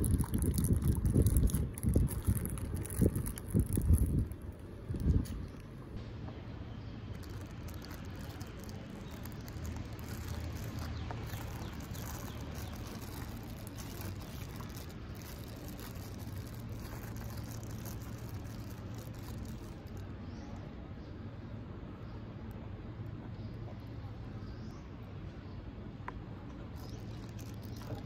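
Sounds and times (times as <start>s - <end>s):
plastic bags crinkling: 0.0s - 5.7s, 7.0s - 20.2s, 26.7s - 28.0s.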